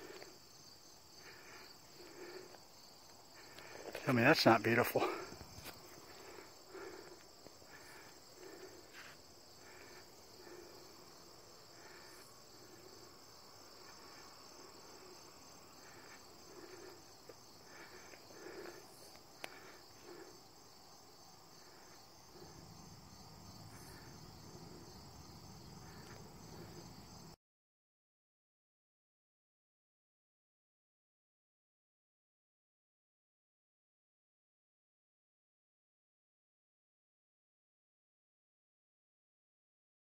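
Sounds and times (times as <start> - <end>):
crickets and insects trilling: 0.0 - 27.4.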